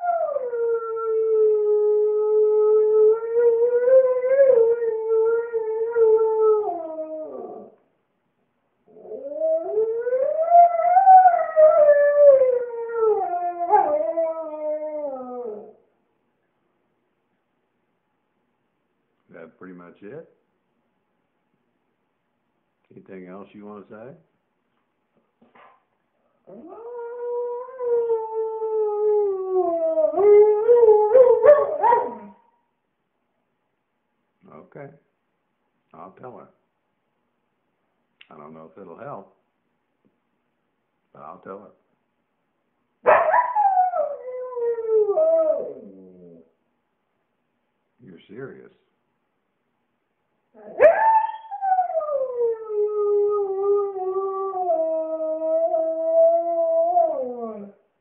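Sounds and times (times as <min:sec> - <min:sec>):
husky howling: 0:00.0 - 0:07.8, 0:08.9 - 0:15.8, 0:26.5 - 0:32.4, 0:43.1 - 0:46.5, 0:50.6 - 0:57.8.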